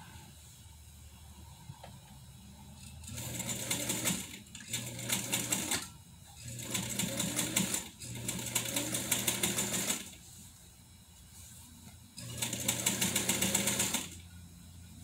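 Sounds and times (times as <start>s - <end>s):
sewing machine stitching: 3.0s - 10.2s, 12.2s - 14.2s.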